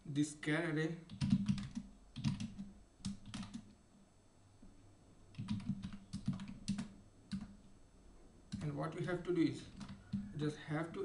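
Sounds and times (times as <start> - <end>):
computer keyboard typing: 1.1 - 3.8, 5.3 - 7.6, 8.5 - 10.5.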